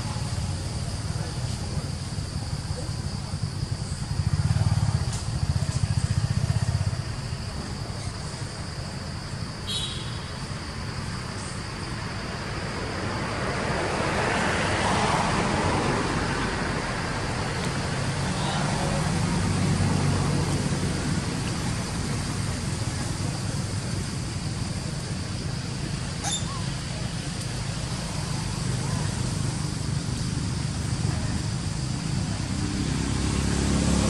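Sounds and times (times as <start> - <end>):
vehicle engine passing: 27.7 - 34.0.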